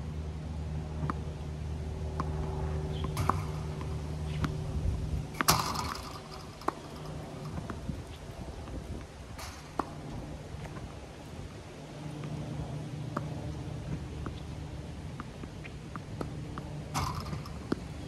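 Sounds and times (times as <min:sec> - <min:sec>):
low hum: 0:00.0 - 0:18.0
balls bouncing on hard court: 0:02.2 - 0:04.6, 0:05.3 - 0:08.8, 0:16.0 - 0:18.0
tennis balls popping off racket: 0:02.2 - 0:04.6, 0:05.3 - 0:08.0, 0:15.1 - 0:18.0.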